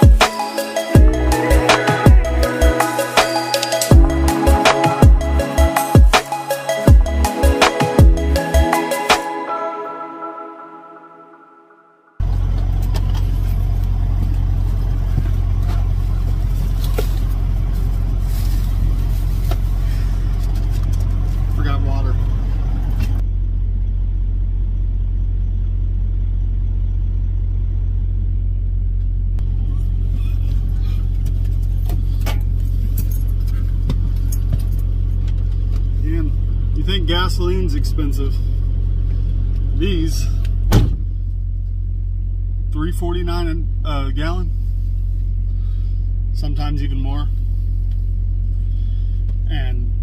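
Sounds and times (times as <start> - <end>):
diesel truck engine idling: 0.0 - 9.0, 12.2 - 50.0
background music: 0.0 - 12.2.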